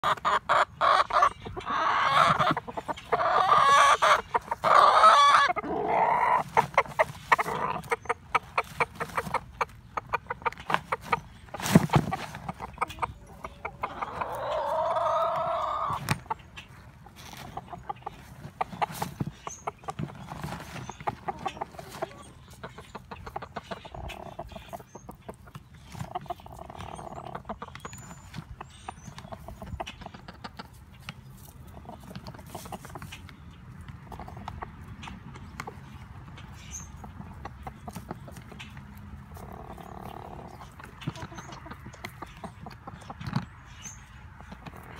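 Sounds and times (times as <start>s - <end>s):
rooster wavering calls: 0.0s - 8.0s, 12.9s - 16.1s
rooster clucking: 0.0s - 44.9s.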